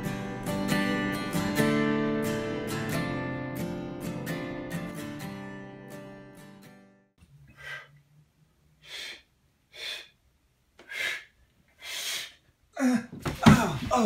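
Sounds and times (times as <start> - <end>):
acoustic guitar music: 0.0 - 7.1
man breathing heavily: 7.4 - 8.1, 8.8 - 13.2
man groaning: 12.8 - 14.0.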